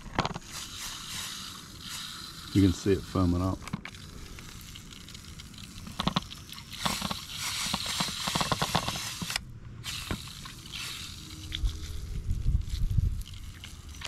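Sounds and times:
pressure sprayer hissing: 0.4 - 4.8, 5.8 - 12.1.

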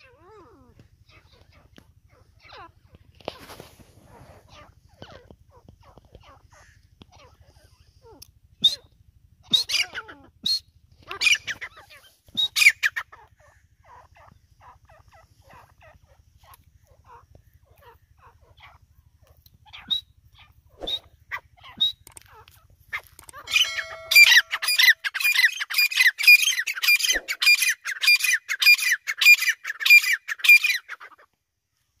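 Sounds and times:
francolin calling: 19.7 - 31.2.

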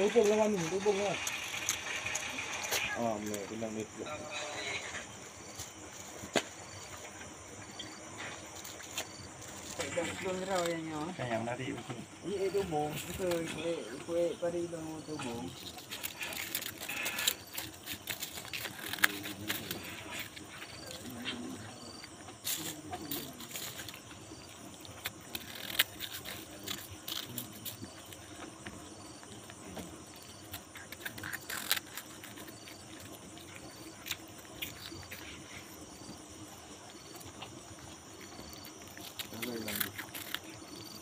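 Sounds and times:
cats crunching snacks: 0.0 - 41.0
cricket chirping: 0.0 - 41.0
insect drone: 0.0 - 41.0.

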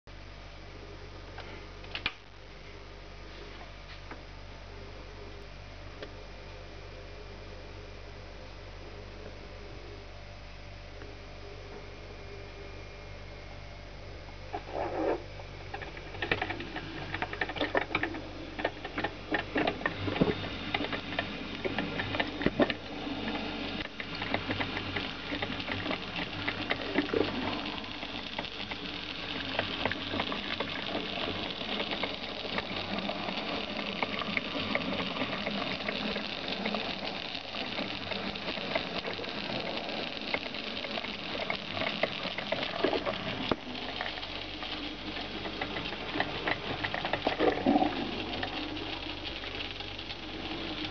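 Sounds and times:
coffee maker bubbling hiss: 0.8 - 50.9
coffee maker gurgling: 14.4 - 50.9.

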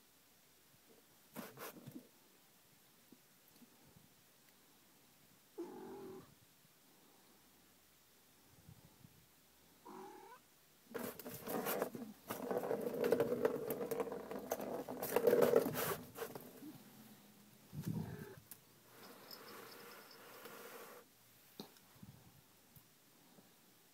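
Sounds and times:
plastic ball rolling on track: 11.0 - 16.5.

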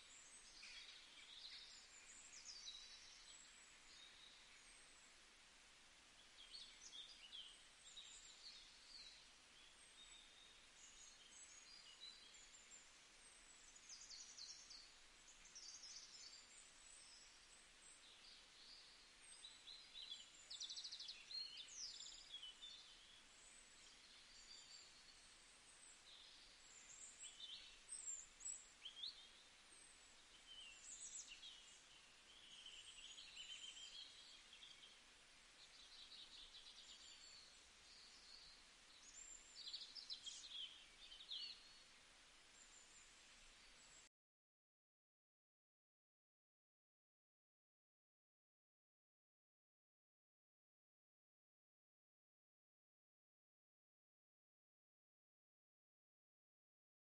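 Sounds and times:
faint birds chirping: 0.0 - 44.1
low steady hiss: 0.0 - 44.1.

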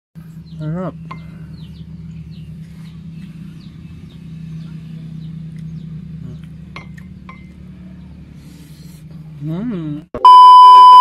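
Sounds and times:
small birds chirping: 0.2 - 10.0
steady low hum: 0.2 - 11.0.

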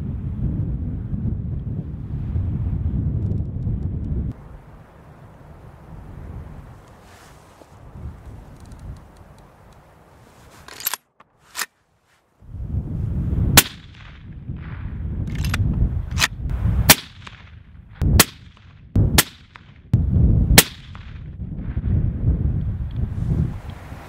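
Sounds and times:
wind buffeting microphone: 0.0 - 10.7, 12.4 - 24.0
suppressed rifle shots: 13.6 - 16.3, 16.9 - 19.9, 20.6 - 21.3.

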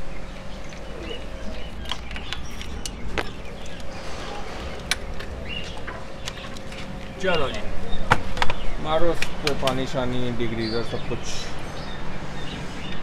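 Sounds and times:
wiring harness clicks and rustles: 1.4 - 4.0.

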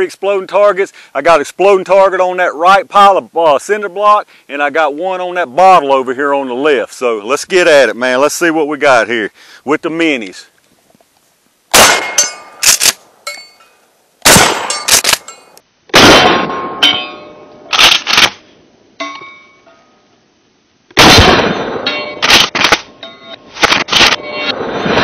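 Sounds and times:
loud shotgun shots: 11.7 - 13.0, 14.2 - 15.3, 15.9 - 16.9, 17.7 - 18.4, 21.0 - 22.9, 23.6 - 25.0
exploding target boom: 16.0 - 16.8, 21.0 - 21.9, 24.6 - 25.0.

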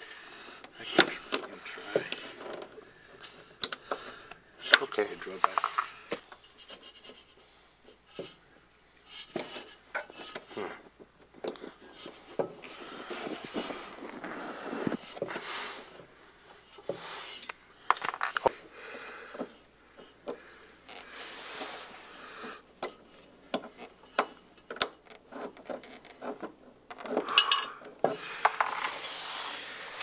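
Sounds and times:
small metal parts clicking and scraping: 24.8 - 28.9
rubbing: 28.2 - 30.0.

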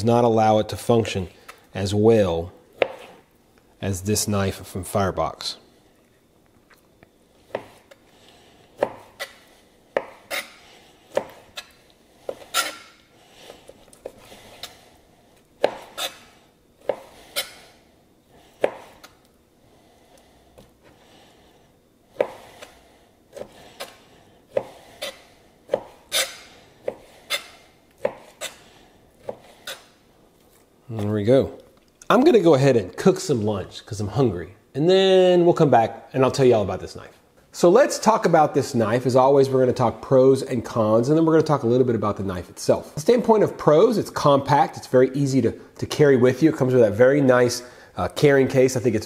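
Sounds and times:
knife striking cutting board: 15.6 - 17.7, 23.8 - 28.6.

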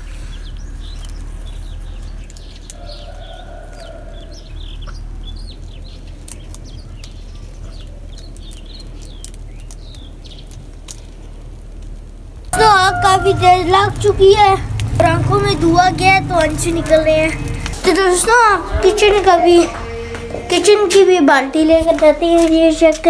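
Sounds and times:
steady low rumble: 4.2 - 23.0
chickens clucking: 12.6 - 21.0.

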